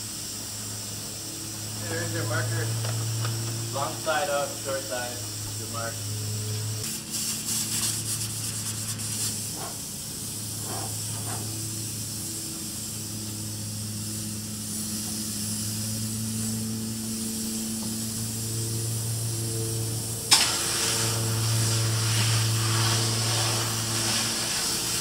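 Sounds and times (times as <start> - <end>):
spray foam gun hissing: 0.0 - 25.0
low hum: 11.1 - 25.0.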